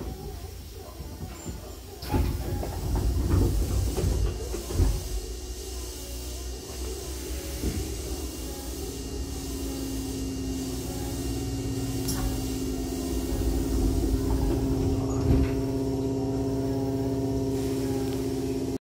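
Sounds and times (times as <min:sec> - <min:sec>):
electrical hum of train: 0:00.0 - 0:18.8
sliding doors closing with thump: 0:01.0 - 0:05.2, 0:11.0 - 0:18.1.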